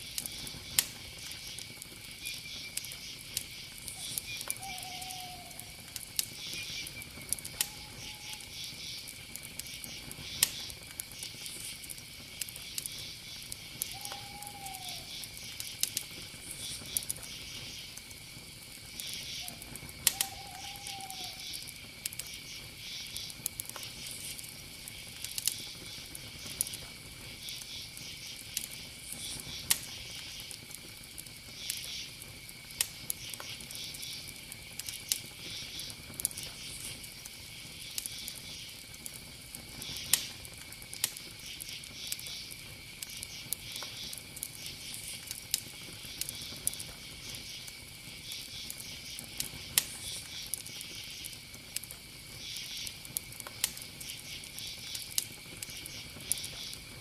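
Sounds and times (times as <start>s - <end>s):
insect chirping bursts: 0.0s - 57.0s
insects trilling: 0.0s - 57.0s
faint clicks: 20.0s - 22.4s.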